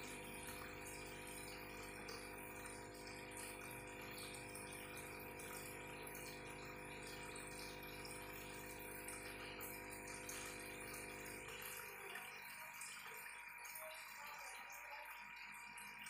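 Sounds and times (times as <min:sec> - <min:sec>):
aquarium air stone bubbling: 0:00.0 - 0:16.0
pump electric hum: 0:00.0 - 0:16.0.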